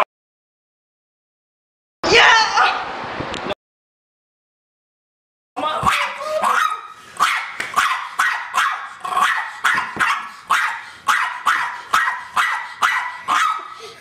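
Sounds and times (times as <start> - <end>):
small dog barking: 5.8 - 13.8.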